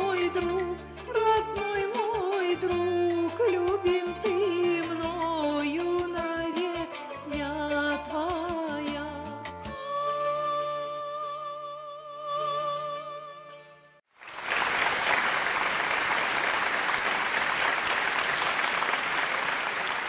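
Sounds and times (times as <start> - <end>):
woman singing: 0.0 - 13.7
musical accompaniment: 0.0 - 20.0
audience applause: 14.2 - 20.0.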